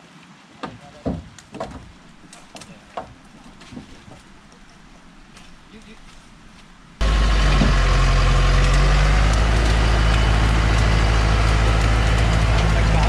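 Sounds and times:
truck engine droning: 7.0 - 13.0.

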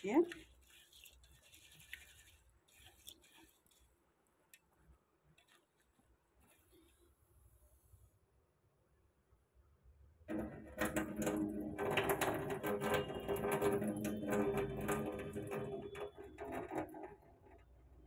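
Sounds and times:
lentils rattling in metal bowl: 0.0 - 3.9, 10.3 - 17.0
water splashing into sink: 10.3 - 18.0.

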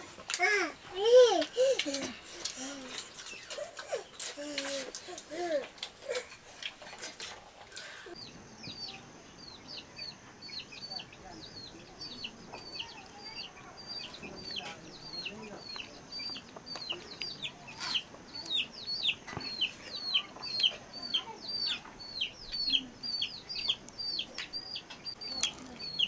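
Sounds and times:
chicks peeping: 7.8 - 26.0.

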